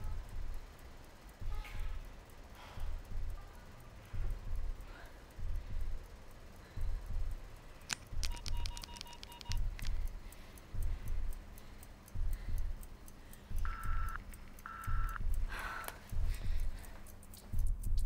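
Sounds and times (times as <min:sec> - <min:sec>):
background music with low beat: 0:00.0 - 0:18.0
electronic beeps: 0:08.2 - 0:09.7, 0:13.7 - 0:15.2.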